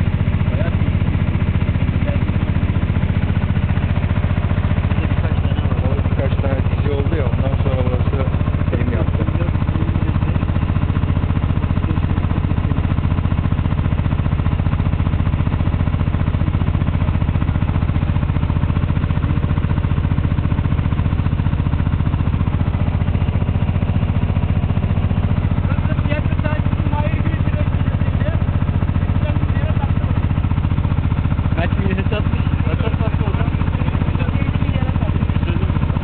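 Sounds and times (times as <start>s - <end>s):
boat engine droning: 0.0s - 36.0s.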